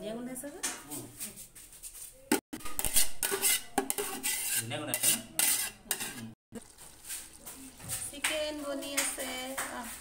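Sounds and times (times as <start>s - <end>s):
metal utensils clinking and scraping: 2.6s - 6.3s.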